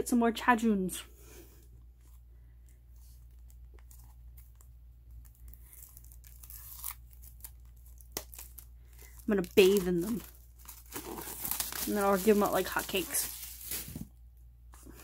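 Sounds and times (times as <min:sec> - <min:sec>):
plastic wrap crinkling and tearing: 0:03.0 - 0:14.2.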